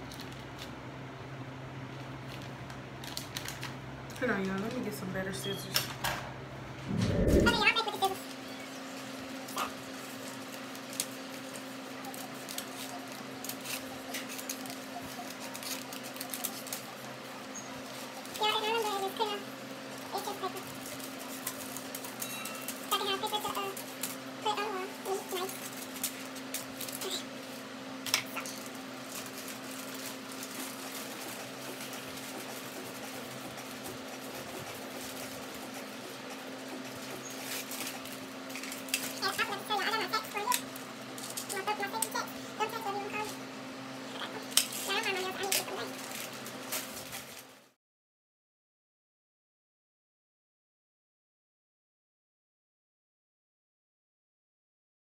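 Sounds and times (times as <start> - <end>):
paper crinkling: 2.0 - 3.8, 9.6 - 43.4
steady low hum: 6.3 - 10.8
scissors snipping paper: 9.6 - 17.1, 20.1 - 27.3.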